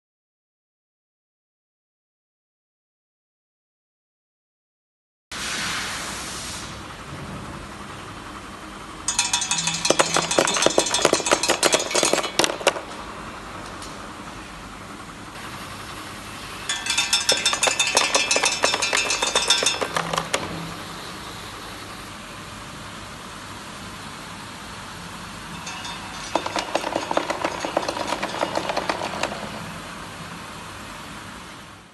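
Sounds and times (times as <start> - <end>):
containers clinking and clattering: 9.1 - 13.0, 16.6 - 20.7, 25.5 - 29.8.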